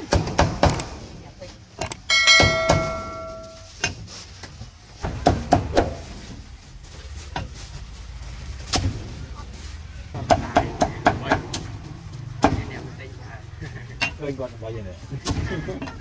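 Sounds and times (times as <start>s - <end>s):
metallic ring: 1.9s - 3.7s.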